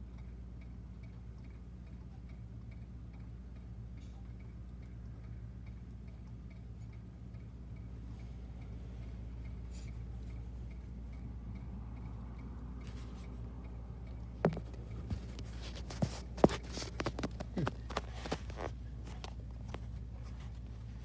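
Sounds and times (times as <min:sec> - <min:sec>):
faint regular ticking: 0:00.0 - 0:21.0
steady low hum: 0:00.0 - 0:21.0.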